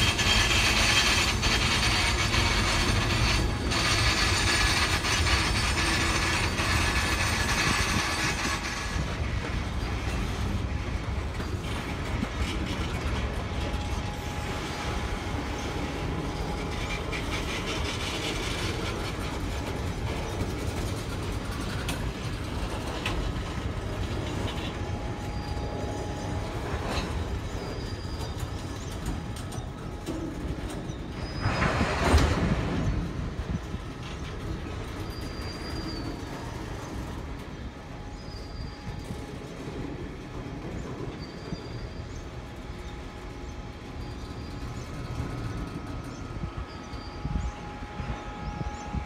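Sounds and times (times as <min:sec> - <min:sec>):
high wheel squeals: 0:00.0 - 0:09.2, 0:11.3 - 0:30.0, 0:34.7 - 0:37.2
train wheels rumbling on rail: 0:00.0 - 0:49.0.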